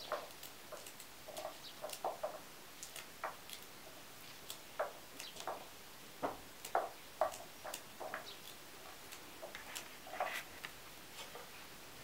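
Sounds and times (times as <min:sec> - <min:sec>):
green beans snapping: 0:02.8 - 0:03.7.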